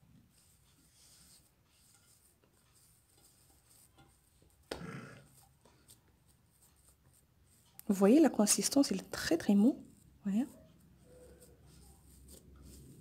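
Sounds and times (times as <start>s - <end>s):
hands squishing soft dough: 0.1s - 13.0s.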